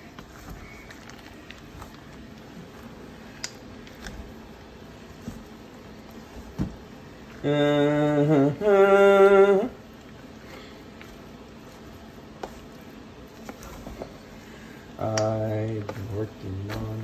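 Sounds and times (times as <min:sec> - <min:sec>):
person singing long notes: 0:07.4 - 0:09.8.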